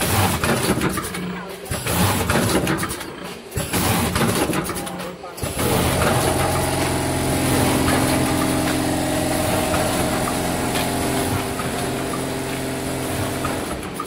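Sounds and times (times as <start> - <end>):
packing machine motor hum: 3.6 - 14.0.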